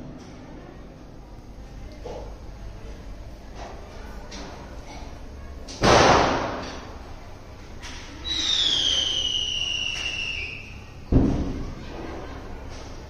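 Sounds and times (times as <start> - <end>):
whistling firework: 8.2 - 10.8.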